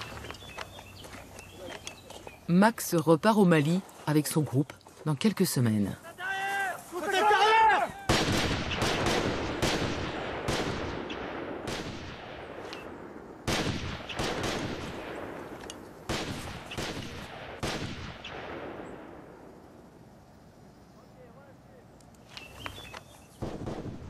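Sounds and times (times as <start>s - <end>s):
rifle shots echoing: 8.1s - 19.5s.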